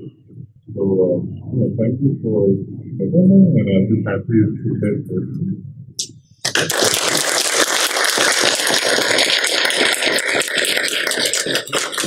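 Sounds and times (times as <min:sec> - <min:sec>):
audience clapping: 0:06.4 - 0:12.0.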